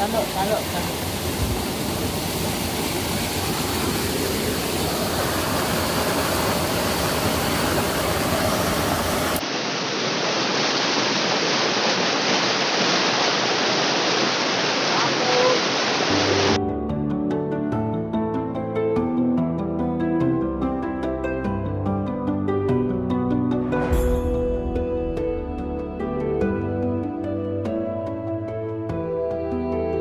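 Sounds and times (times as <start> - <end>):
water rushing over rocks: 0.0 - 16.6.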